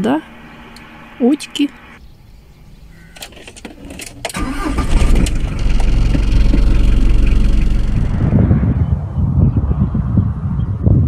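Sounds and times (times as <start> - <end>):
car engine starting and rumbling: 0.0 - 8.6
clicks before engine start: 3.1 - 8.3.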